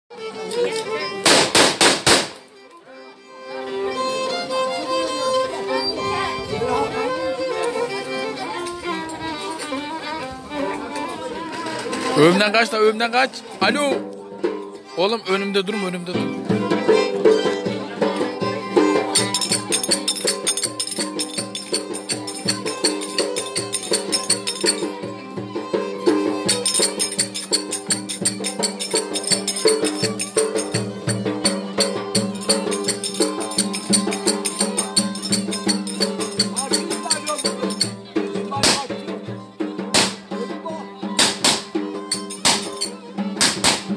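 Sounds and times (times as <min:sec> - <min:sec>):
violin playing folk tune: 0:00.1 - 0:43.9
loud thumps: 0:01.2 - 0:02.4, 0:39.9 - 0:40.3
tapped percussion beat: 0:01.2 - 0:02.4, 0:15.2 - 0:43.9.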